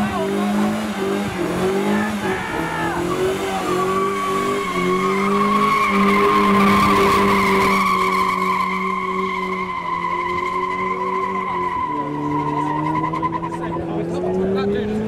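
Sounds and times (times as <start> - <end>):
car engine at high revs: 0.0 - 15.0
tyres squealing: 1.9 - 13.8.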